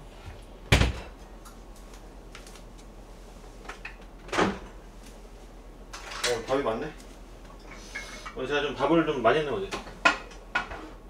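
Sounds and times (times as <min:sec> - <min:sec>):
knock of kitchen items: 0:00.7 - 0:01.1.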